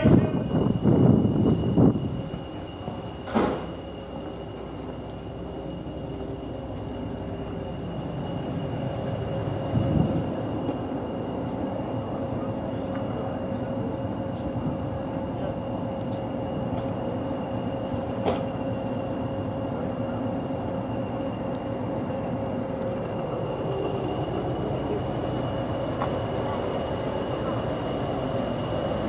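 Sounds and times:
diesel locomotive engine idling: 0.0s - 29.0s
steady whistle: 26.4s - 29.0s.

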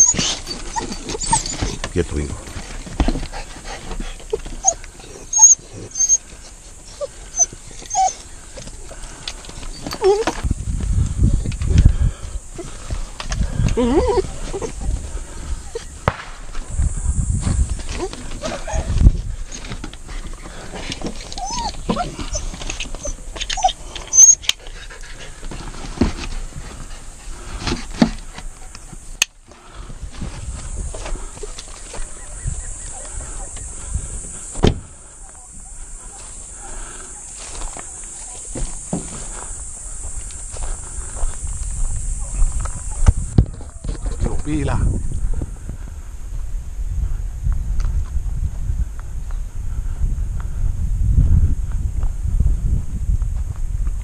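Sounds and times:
hunting dogs crying: 0.0s - 2.0s, 3.2s - 10.4s, 13.7s - 16.0s, 17.9s - 25.4s
rustling and clicking: 17.4s - 29.6s.

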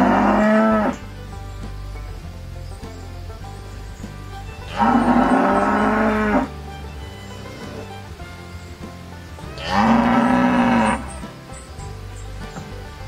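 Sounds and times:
cow mooing: 0.0s - 1.1s, 4.7s - 6.5s, 9.5s - 11.2s.

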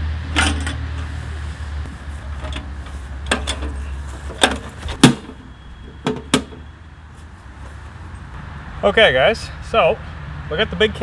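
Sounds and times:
road traffic rumble: 0.0s - 11.0s
metal knocks and clanks: 0.3s - 1.1s, 2.2s - 6.7s.

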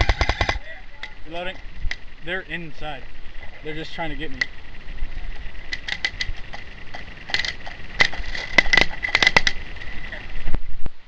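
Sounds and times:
airsoft guns firing: 0.0s - 1.2s.

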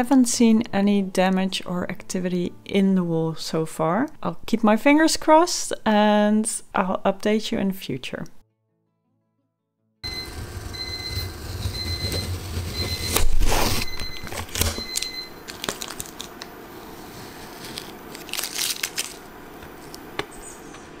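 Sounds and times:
label peeling off plastic: 11.3s - 16.5s, 17.2s - 19.3s.

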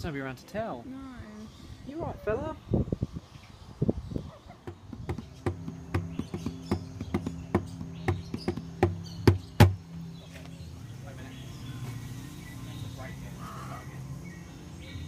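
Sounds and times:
hand drums slapped with palms: 4.6s - 9.8s.

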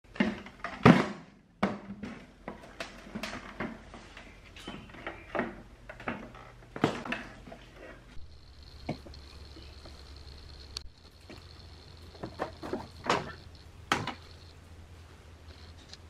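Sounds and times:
small knocks and rubbing: 1.9s - 14.5s.

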